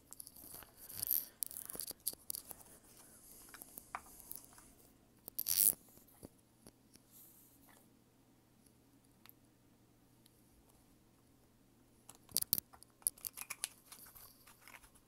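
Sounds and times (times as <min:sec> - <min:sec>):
rustling and light clicks: 0:12.1 - 0:15.0.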